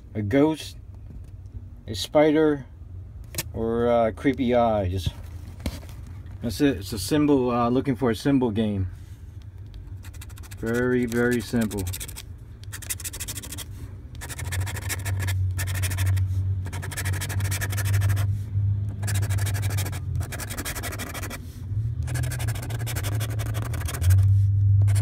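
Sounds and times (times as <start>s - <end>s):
lottery ticket being scratched: 9.9s - 18.3s, 18.9s - 21.4s, 22.0s - 25.0s.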